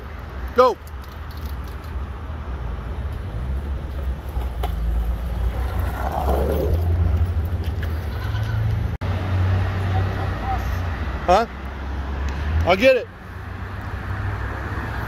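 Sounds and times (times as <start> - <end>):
skateboard wheels rolling on asphalt: 1.8 - 9.2.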